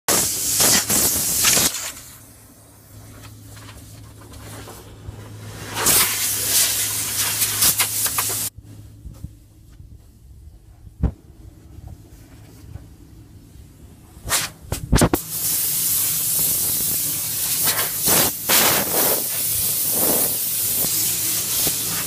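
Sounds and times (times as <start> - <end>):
compressed air nozzle hissing: 0.1 - 2.0, 5.8 - 8.5, 15.1 - 22.0
steady low hum: 0.2 - 22.0.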